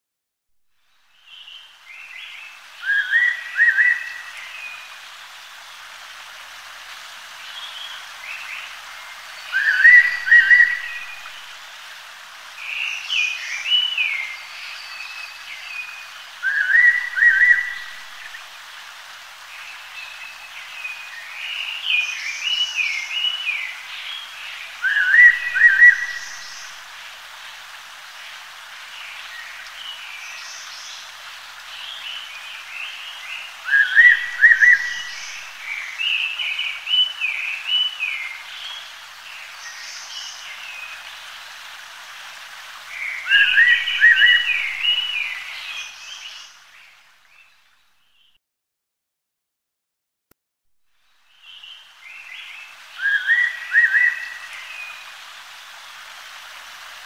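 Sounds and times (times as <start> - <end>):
birds chirping and twittering: 28.2 - 41.4, 42.8 - 48.4, 51.2 - 56.0.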